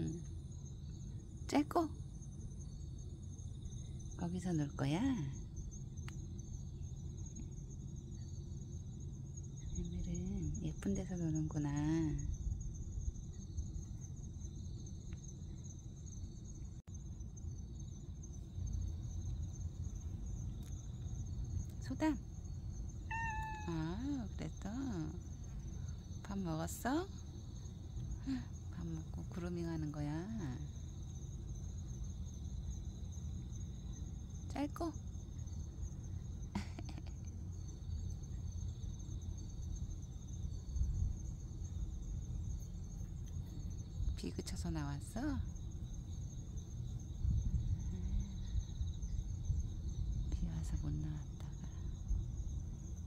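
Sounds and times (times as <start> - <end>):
insects chirring: 0.0 - 53.0
low background rumble: 0.0 - 53.0
short voice-like call: 23.1 - 23.8.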